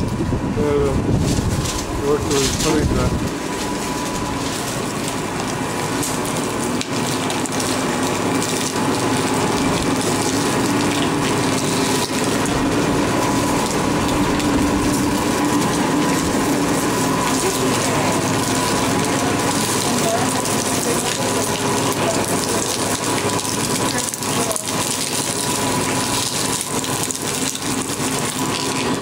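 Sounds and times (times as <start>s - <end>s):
sugarcane crusher humming: 0.0s - 29.0s
cane stalks being crushed: 1.1s - 29.0s.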